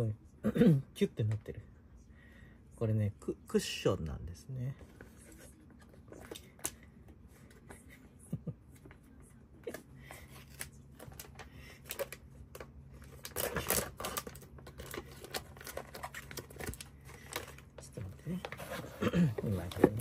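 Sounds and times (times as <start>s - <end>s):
plastic bag crinkling and tearing: 10.4s - 18.4s.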